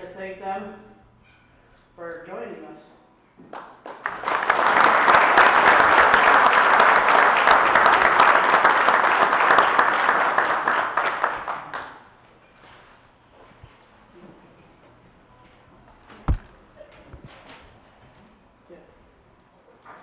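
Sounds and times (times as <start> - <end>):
audience applauding: 3.5 - 12.1.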